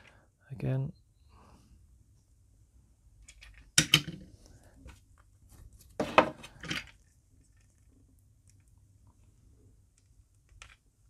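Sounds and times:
hands handling plastic toy: 3.2s - 9.2s, 9.9s - 10.9s.

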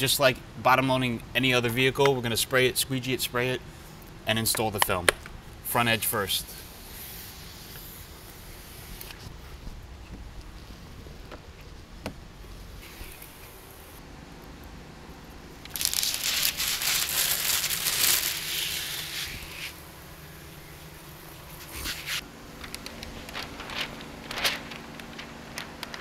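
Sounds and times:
plastic film crinkling: 15.6s - 19.8s, 21.6s - 26.0s.

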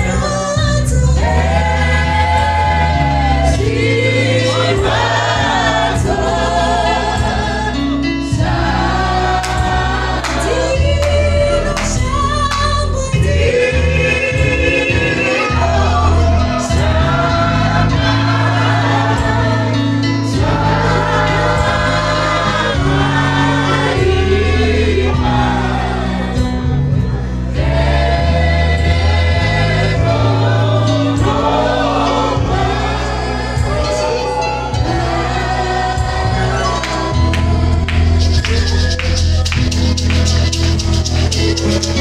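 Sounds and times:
woman singing into microphone: 0.0s - 3.6s, 9.7s - 16.6s
backing singers: 0.0s - 42.0s
rattling percussion: 37.3s - 42.0s.

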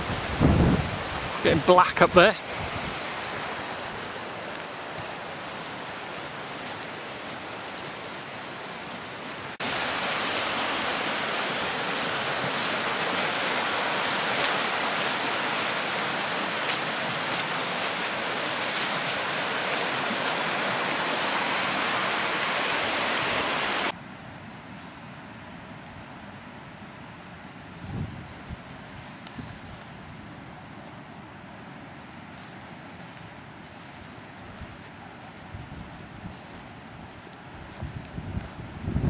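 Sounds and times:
river rushing over rocks: 0.0s - 23.9s
wind hiss: 0.0s - 23.9s, 27.7s - 30.4s.

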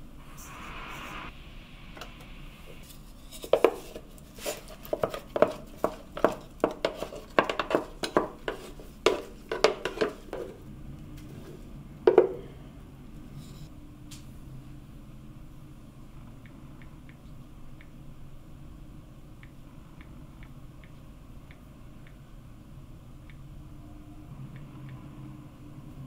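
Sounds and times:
plastic container knocking on metal bowl: 5.0s - 10.6s, 12.1s - 12.4s.

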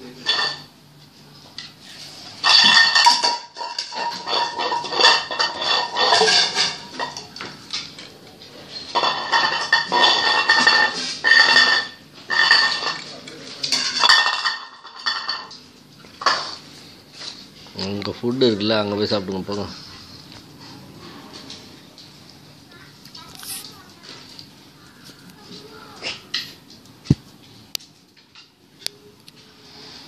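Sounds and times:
metal dishes clattering on tiles: 0.2s - 0.7s, 2.4s - 16.6s.

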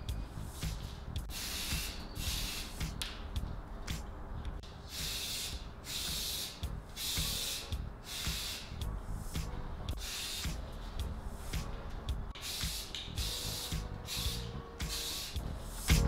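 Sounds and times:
spray paint can hissing: 0.4s - 3.1s, 4.9s - 11.7s, 12.3s - 16.0s.

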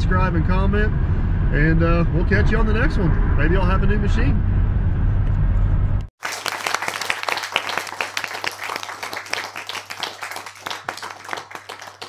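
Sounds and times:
low hum: 0.0s - 6.1s.

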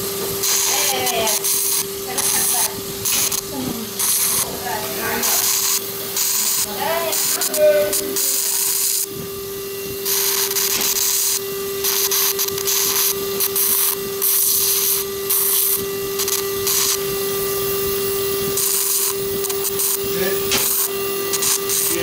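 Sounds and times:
steady generator tone: 0.0s - 22.0s
short bursts of hiss: 5.2s - 9.1s, 10.0s - 17.0s.

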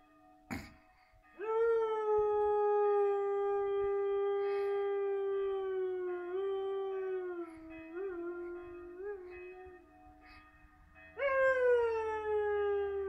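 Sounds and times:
faint church bells ringing: 0.0s - 2.7s, 4.4s - 13.0s
dog howling: 1.4s - 10.0s, 11.2s - 13.0s.

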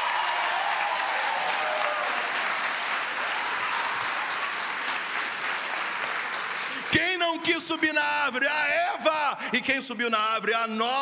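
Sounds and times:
crowd clapping: 0.0s - 8.4s.

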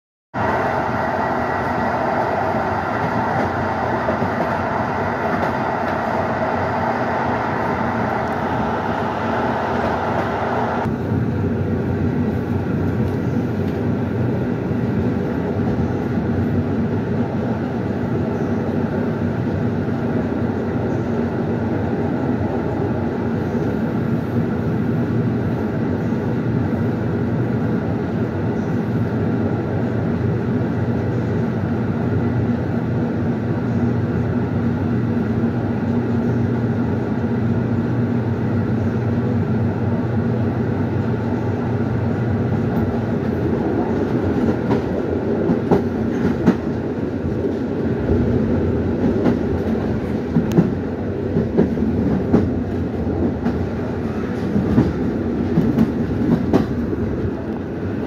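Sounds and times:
train rolling rumble: 0.4s - 58.0s.

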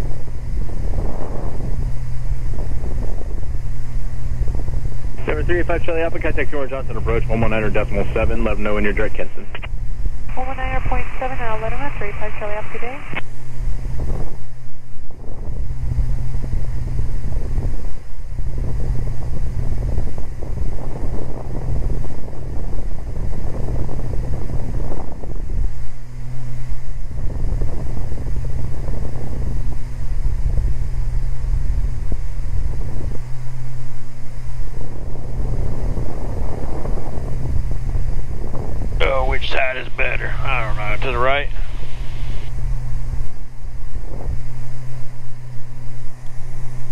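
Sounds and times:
airplane cabin engine drone: 0.0s - 46.9s
rushing noise: 38.9s - 46.9s.

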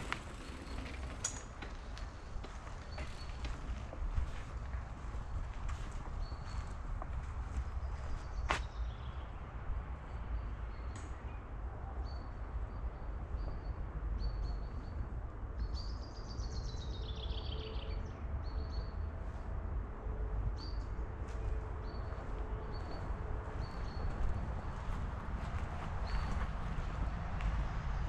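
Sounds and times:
birds chirping: 0.0s - 6.8s, 20.6s - 28.0s
steady low rumble: 19.2s - 28.0s.

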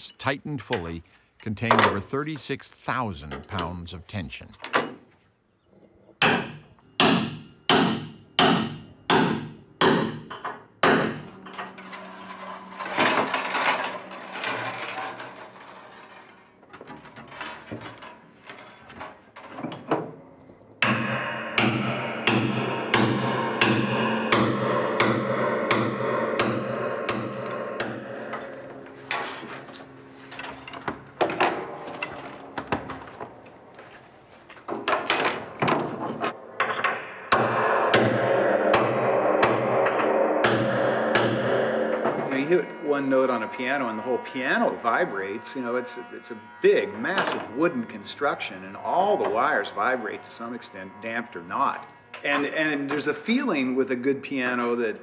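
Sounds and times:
hammer striking metal pins: 1.6s - 2.2s, 3.2s - 4.0s, 6.2s - 33.7s, 34.6s - 46.0s, 47.0s - 47.9s
ringing piano wire tones: 11.3s - 18.7s, 26.2s - 33.8s, 39.8s - 53.7s.

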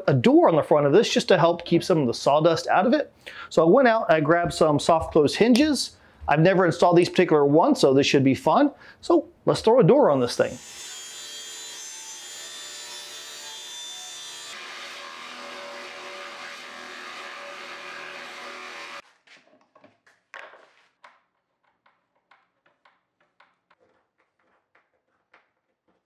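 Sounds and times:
table saw cutting plywood: 10.4s - 19.0s.

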